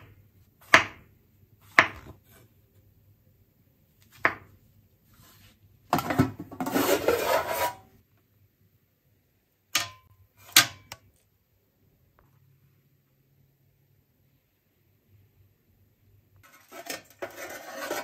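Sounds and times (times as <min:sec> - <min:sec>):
knife chop on wooden board: 0:00.6 - 0:01.0, 0:01.7 - 0:02.2.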